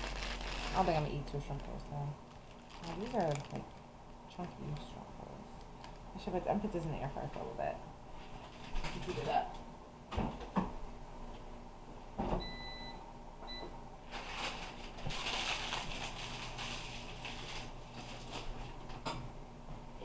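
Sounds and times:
air fryer fan running: 0.0 - 10.7
air fryer beeping: 12.4 - 13.7.

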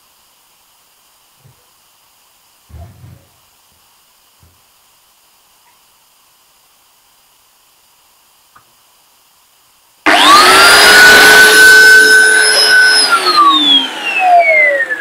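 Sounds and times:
angle grinder whine: 10.0 - 15.0.

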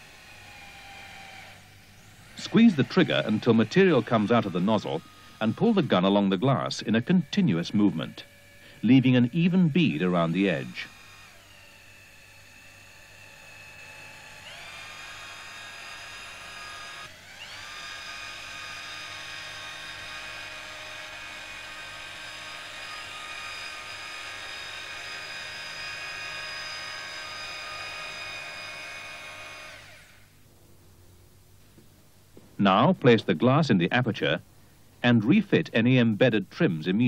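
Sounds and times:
electric motor whining: 0.0 - 30.3.

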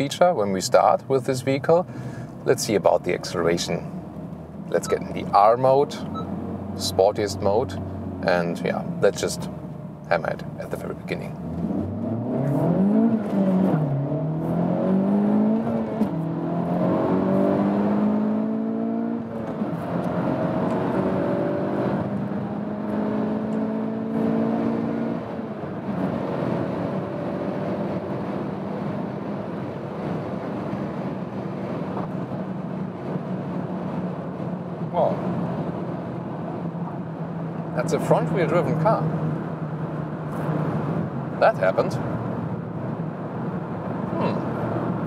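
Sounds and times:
car engine accelerating hard: 11.1 - 45.0.

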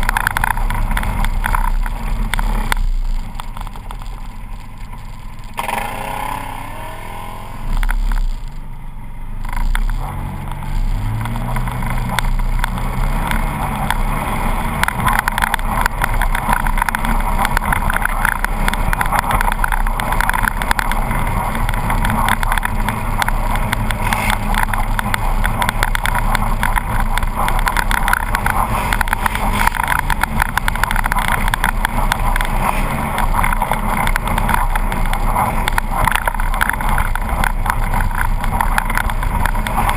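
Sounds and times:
engine revving: 0.0 - 39.9
rattle from rough track: 0.0 - 39.9.

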